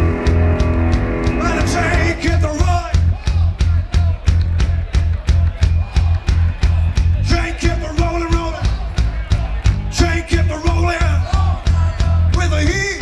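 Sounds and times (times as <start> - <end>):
long held notes: 0.0 - 3.0
rockabilly band playing live: 0.0 - 13.0.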